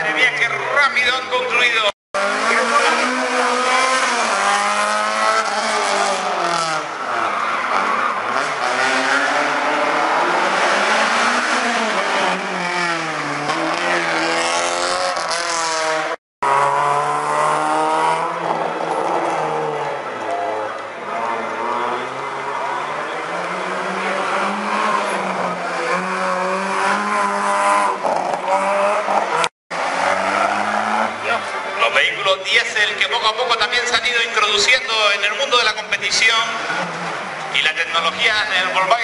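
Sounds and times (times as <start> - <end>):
rally car engines revving: 2.2 - 39.0.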